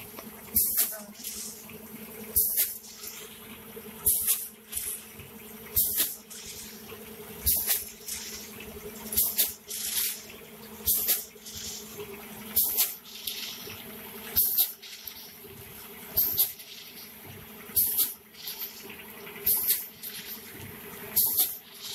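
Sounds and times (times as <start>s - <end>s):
steady machine hum: 0.0s - 21.9s
compressed air hiss with clack: 2.4s - 2.8s, 4.1s - 4.8s, 7.5s - 8.4s, 9.2s - 10.2s, 10.9s - 11.8s, 12.6s - 13.4s, 14.4s - 15.2s, 16.2s - 16.6s, 17.8s - 18.7s, 19.5s - 20.3s, 21.2s - 21.6s.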